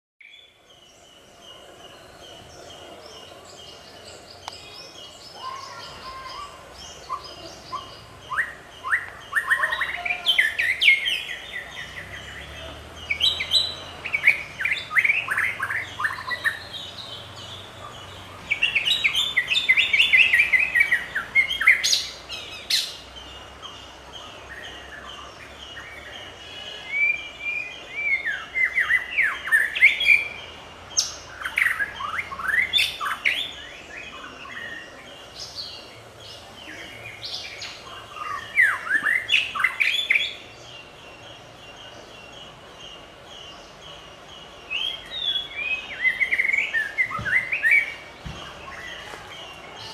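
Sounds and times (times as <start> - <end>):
bird singing whistled notes: 36.7 - 49.9.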